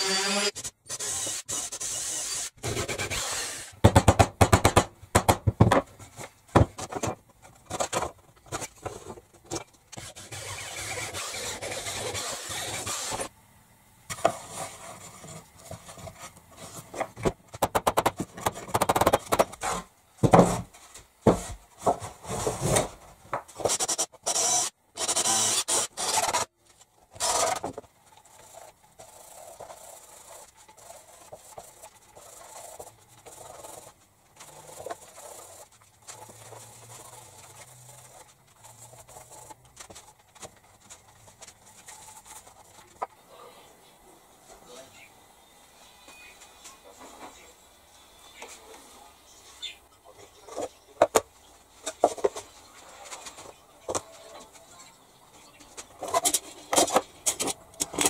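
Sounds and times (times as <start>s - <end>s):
sandpaper rubbing on wood: 10.0s - 13.3s
power drill driving into wood: 23.7s - 26.4s.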